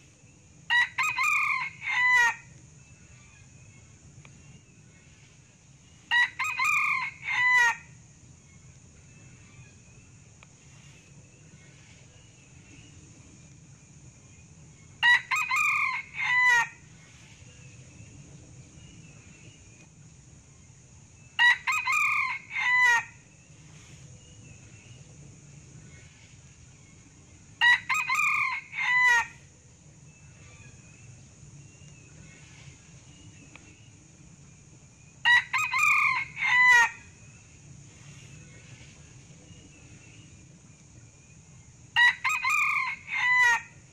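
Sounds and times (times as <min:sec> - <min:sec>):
steady high hiss: 0:00.0 - 0:43.9
rooster crowing: 0:00.7 - 0:02.5, 0:06.1 - 0:07.9, 0:15.0 - 0:16.8, 0:21.4 - 0:23.2, 0:27.6 - 0:29.4, 0:35.2 - 0:37.1, 0:42.0 - 0:43.8.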